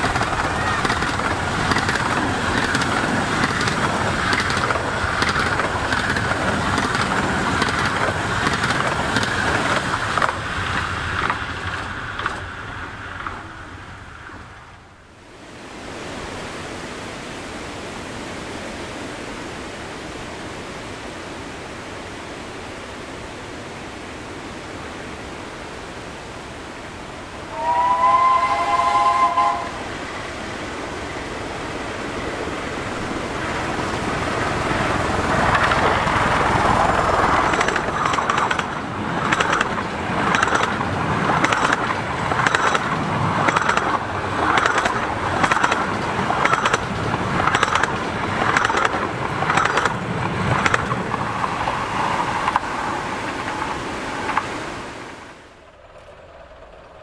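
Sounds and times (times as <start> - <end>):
train running noise: 0.0 - 15.3, 19.2 - 57.0
steam locomotive whistle: 27.4 - 30.4.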